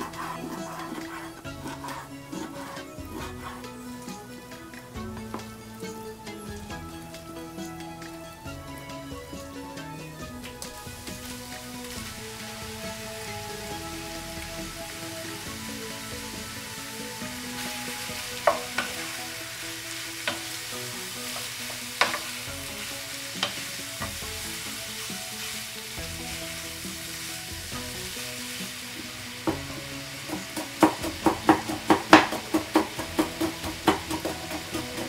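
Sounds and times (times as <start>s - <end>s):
soft background music: 0.0s - 35.0s
meat sizzling in frying pan: 10.3s - 35.0s
spatula knocking on pan: 18.3s - 19.1s, 20.3s - 20.5s, 21.4s - 22.3s, 29.5s - 35.0s
knife chopping on wooden board: 30.6s - 35.0s.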